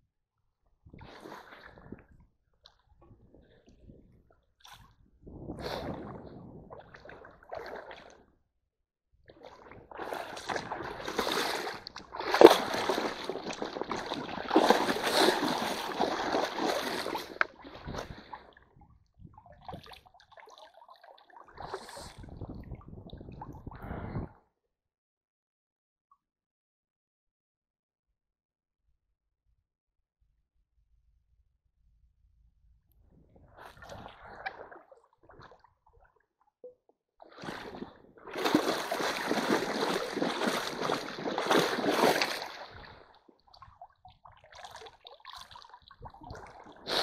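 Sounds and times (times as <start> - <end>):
boots wading in water: 6.9 - 8.2, 9.4 - 18.5, 37.3 - 47.0
stream water splashing: 9.9 - 18.2, 37.4 - 43.0, 46.3 - 47.0.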